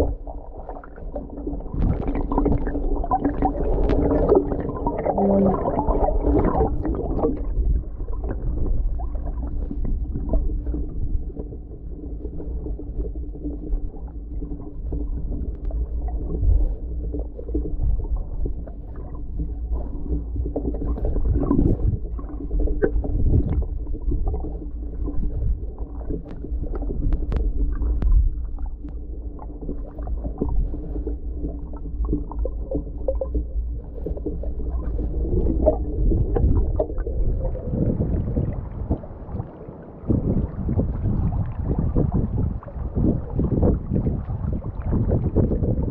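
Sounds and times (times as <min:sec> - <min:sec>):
muffled underwater rumble of water: 0:00.0 - 0:45.9
faint clicks and knocks: 0:13.0 - 0:37.1.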